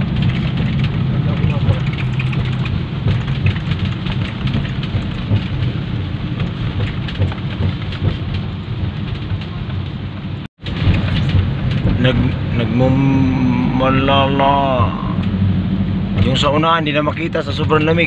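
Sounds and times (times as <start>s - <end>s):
rain pattering on windshield and roof: 0.0s - 13.4s
moving vehicle rumble: 0.0s - 18.0s.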